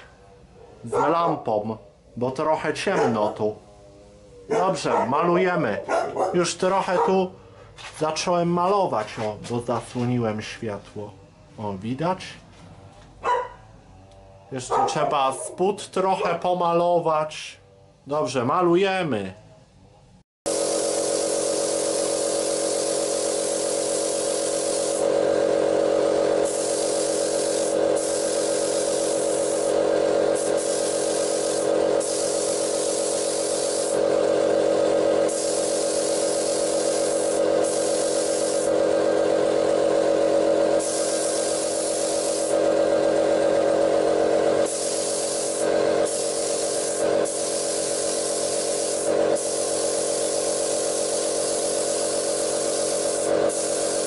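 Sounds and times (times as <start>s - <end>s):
spray gun hissing: 20.5s - 54.0s
steady motor hum: 20.5s - 54.0s.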